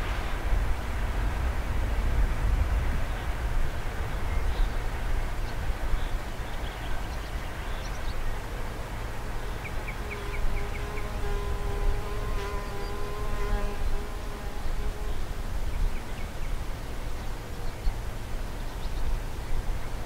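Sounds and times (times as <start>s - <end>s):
fly buzzing: 9.8s - 15.2s.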